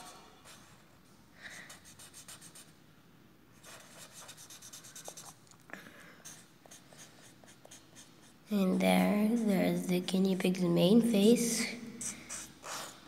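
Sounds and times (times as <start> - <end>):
marker scribbling on paper: 1.7 - 2.7, 3.6 - 5.4, 6.2 - 8.4, 12.0 - 13.0.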